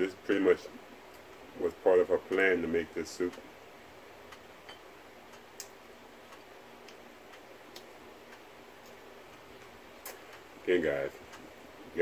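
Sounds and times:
room hiss: 0.0 - 12.0.

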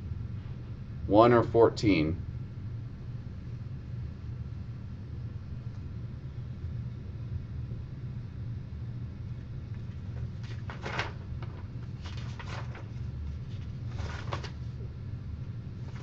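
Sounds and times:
low room hum: 0.0 - 16.0
paper rustling on a desk: 9.7 - 14.9, 15.8 - 16.0.

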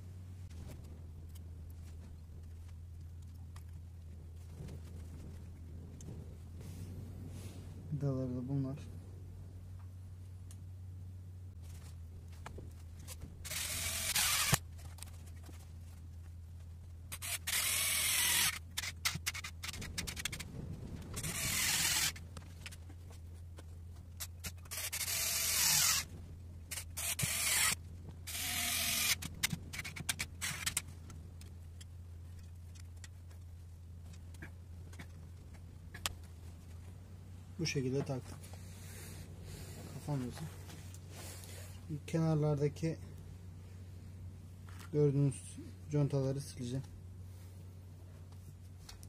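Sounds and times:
parts clicking and rattling: 11.6 - 37.0
cordless screwdriver running: 13.4 - 14.6, 17.1 - 20.4, 21.2 - 22.2, 24.6 - 26.1, 26.7 - 30.8.

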